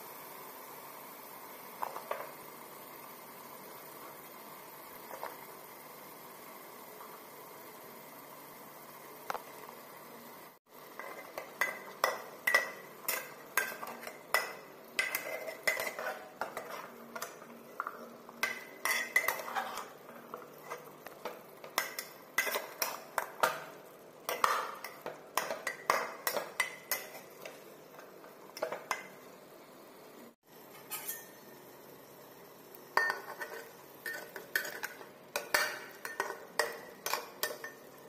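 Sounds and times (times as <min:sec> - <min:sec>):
faint steady hiss: 0:00.0 - 0:38.0
metal spatula scraping a pot: 0:11.0 - 0:23.5, 0:24.3 - 0:27.6, 0:30.7 - 0:31.4, 0:33.0 - 0:37.8.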